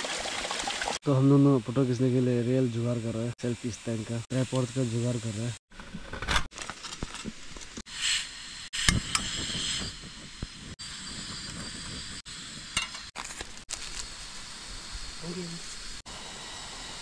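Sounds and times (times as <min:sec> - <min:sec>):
gas stove burner hissing: 0:07.9 - 0:12.9.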